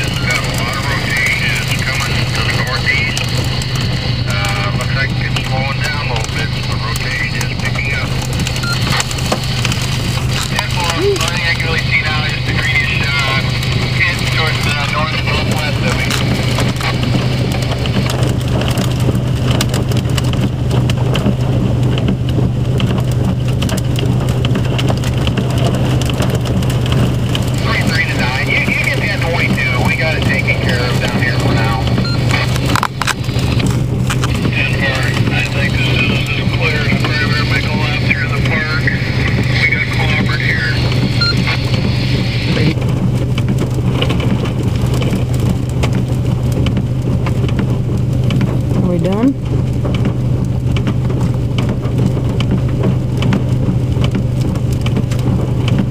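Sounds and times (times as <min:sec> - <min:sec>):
hailstones striking: 0:00.0 - 0:55.9
heavy rain and hail: 0:00.0 - 0:55.9
steady low hum: 0:00.0 - 0:55.9
hailstones striking hard surfaces: 0:30.2 - 0:36.2.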